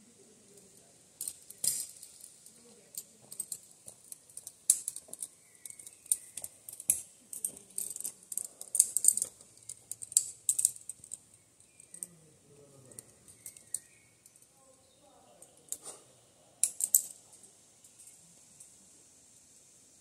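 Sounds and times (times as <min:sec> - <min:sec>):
metal carabiners clinking: 0:01.2 - 0:12.2, 0:12.8 - 0:14.5, 0:16.6 - 0:18.2.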